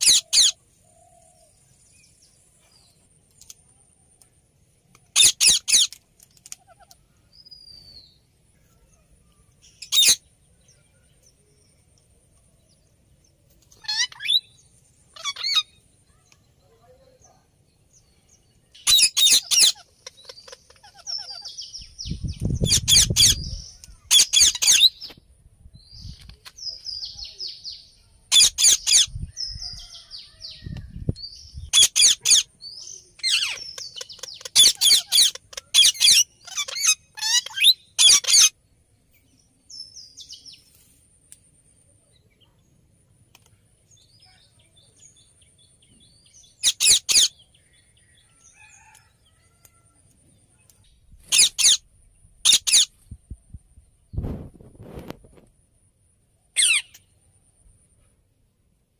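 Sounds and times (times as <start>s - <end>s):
parakeets chattering: 0.0s - 0.6s, 5.1s - 7.0s, 9.8s - 10.2s, 13.7s - 15.8s, 18.8s - 21.7s, 22.6s - 25.0s, 28.3s - 29.1s, 31.7s - 32.5s, 33.2s - 38.5s, 46.6s - 47.4s, 51.2s - 51.8s, 52.4s - 52.9s
parakeets screeching: 0.0s - 0.6s, 5.1s - 6.0s, 9.8s - 10.2s, 13.8s - 14.5s, 15.1s - 15.8s, 18.8s - 21.6s, 22.6s - 25.0s, 28.3s - 29.1s, 31.7s - 32.5s, 33.2s - 38.5s, 46.6s - 47.3s, 51.3s - 51.8s, 52.4s - 52.9s, 56.6s - 57.0s.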